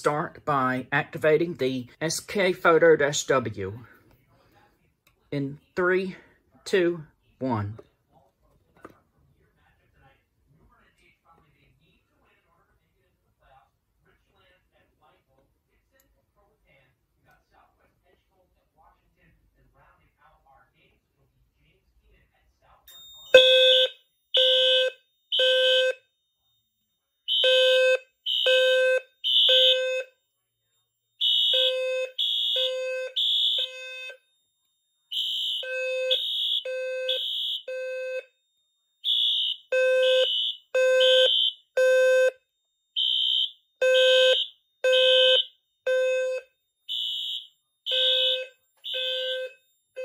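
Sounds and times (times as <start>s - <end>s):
fire alarm beeping: 22.9s - 50.0s.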